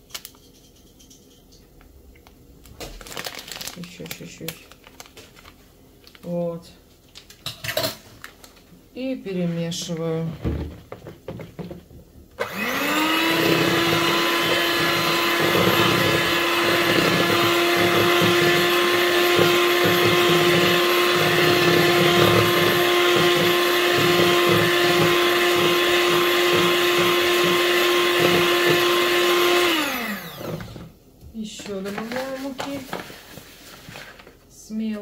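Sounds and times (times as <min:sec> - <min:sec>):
electric mixer whining: 0:12.4 - 0:30.9.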